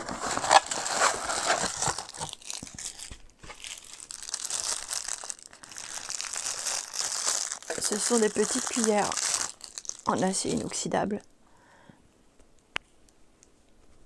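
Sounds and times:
packaging crinkling and tearing: 0:00.0 - 0:10.8.

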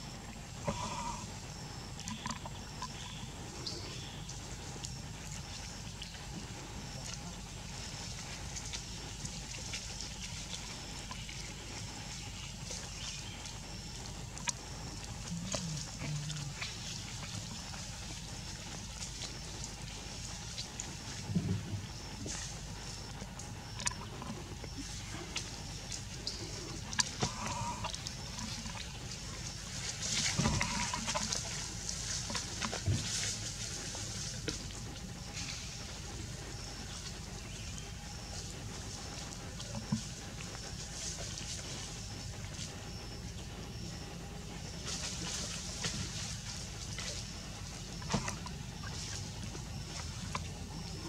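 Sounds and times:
steady low hum: 0:00.0 - 0:51.0
short animal calls: 0:00.5 - 0:01.4, 0:26.5 - 0:28.5, 0:30.2 - 0:31.4.

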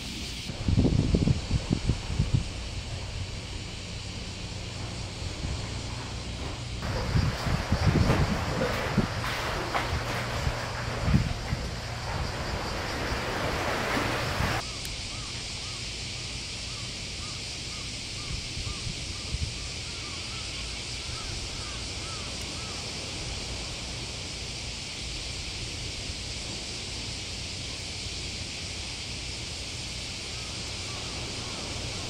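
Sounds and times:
steady hiss: 0:00.0 - 0:32.0
wind buffeting microphone: 0:00.4 - 0:14.6, 0:18.1 - 0:24.2
surf: 0:06.4 - 0:14.6.

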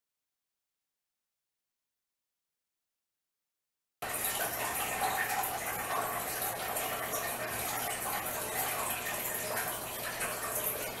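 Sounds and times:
rushing water-like noise: 0:04.0 - 0:11.0.

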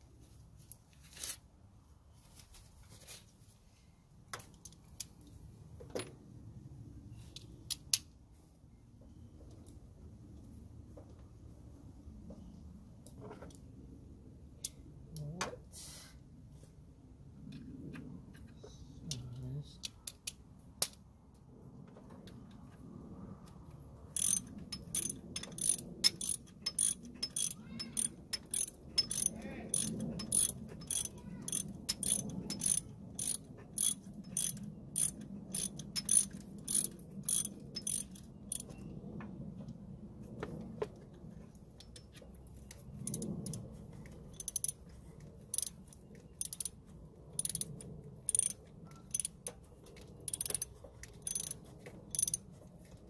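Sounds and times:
ratchet wrench clicking: 0:24.2 - 0:38.7, 0:43.0 - 0:43.6, 0:44.4 - 0:44.8, 0:45.5 - 0:46.8, 0:47.4 - 0:49.6, 0:50.2 - 0:52.4.

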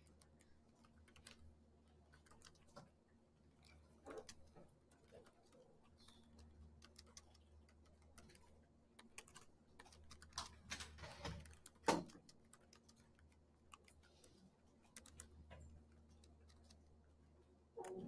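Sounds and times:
keyboard keys clicking: 0:00.0 - 0:01.5, 0:02.1 - 0:02.7, 0:03.6 - 0:16.8.

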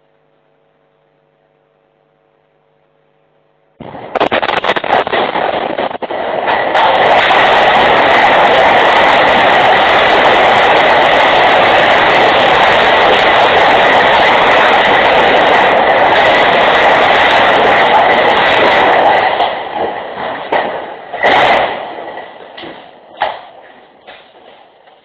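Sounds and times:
steady rushing hiss: 0:03.8 - 0:25.0.

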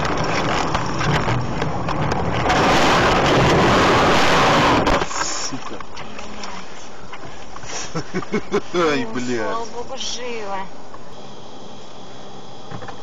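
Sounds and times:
snow rushing against car: 0:00.0 - 0:05.5.

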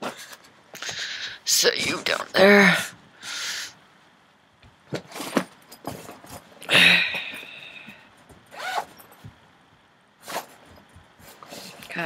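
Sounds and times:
knocks and rustles: 0:04.6 - 0:06.6, 0:08.2 - 0:09.5.

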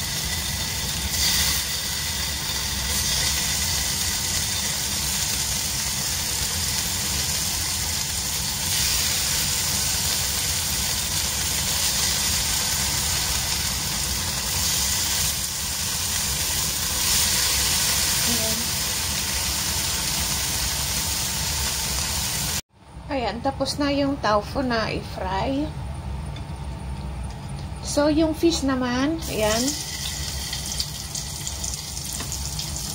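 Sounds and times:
tofu sizzling in a wok: 0:00.0 - 0:22.6, 0:29.2 - 0:32.9
low hum: 0:22.7 - 0:30.7.

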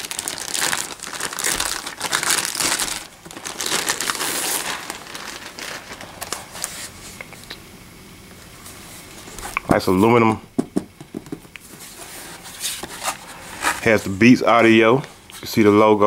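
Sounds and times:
plastic bag crinkling: 0:00.0 - 0:07.0.

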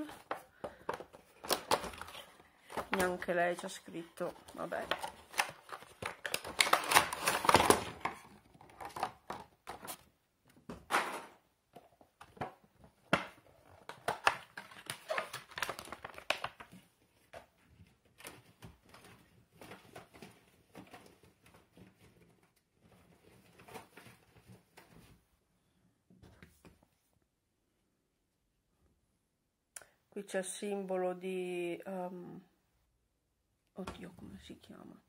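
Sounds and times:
packaging rustling and crinkling: 0:00.0 - 0:10.1, 0:12.2 - 0:25.2.

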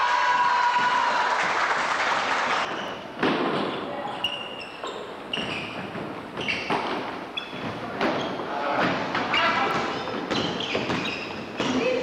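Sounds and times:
shoes squeaking on floor: 0:02.6 - 0:12.0
basketball bouncing on wooden floor: 0:05.3 - 0:12.0.

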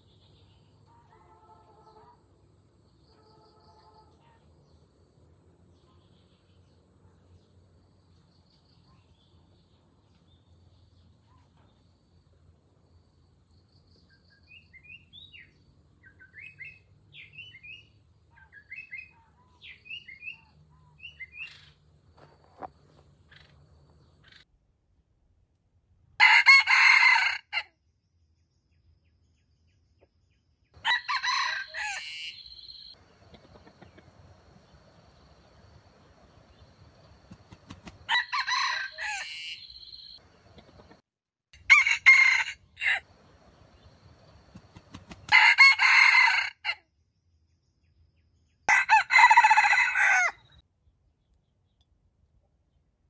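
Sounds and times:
rooster crowing: 0:26.2 - 0:27.6, 0:30.8 - 0:32.6, 0:38.1 - 0:39.8, 0:41.6 - 0:43.2, 0:45.2 - 0:46.8, 0:48.7 - 0:50.5.

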